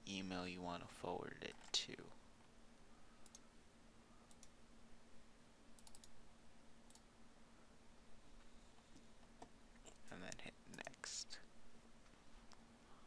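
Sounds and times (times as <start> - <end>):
faint low hum: 0.0 - 13.0
computer mouse clicks: 3.2 - 3.4, 4.3 - 4.6, 5.8 - 6.2, 6.9 - 7.1.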